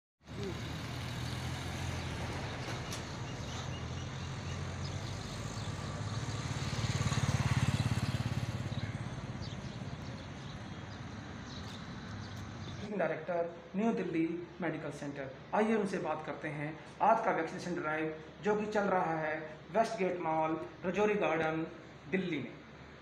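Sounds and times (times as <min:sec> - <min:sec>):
car engine passing: 0:00.3 - 0:12.9.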